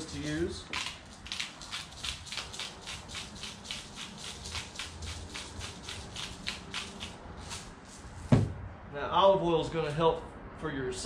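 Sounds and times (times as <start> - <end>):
salt and pepper rattling hiss: 0.0 - 8.0.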